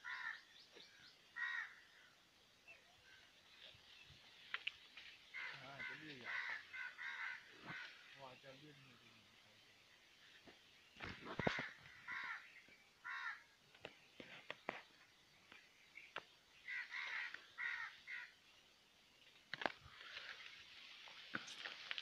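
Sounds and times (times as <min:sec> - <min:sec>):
crows cawing: 0:00.0 - 0:00.5, 0:01.4 - 0:02.1, 0:05.3 - 0:08.2, 0:11.3 - 0:13.6, 0:16.6 - 0:18.4.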